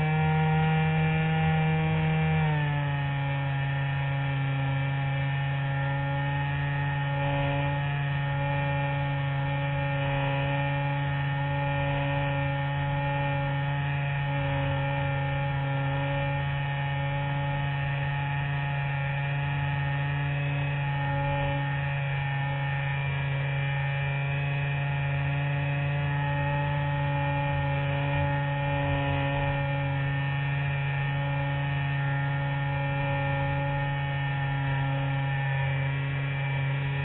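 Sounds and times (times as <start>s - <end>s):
electric motor and propeller humming: 0.0s - 37.0s.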